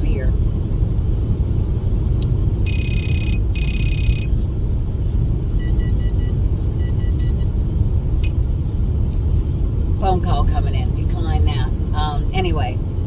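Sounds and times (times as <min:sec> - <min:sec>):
car road rumble: 0:00.0 - 0:13.0
phone ringtone electronic tones: 0:02.6 - 0:04.3
short beeps: 0:02.6 - 0:04.3, 0:05.6 - 0:07.5.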